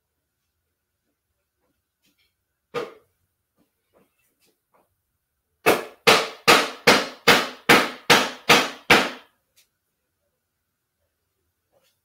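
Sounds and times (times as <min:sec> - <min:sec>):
mallet knocking wooden parts: 0:05.6 - 0:09.3.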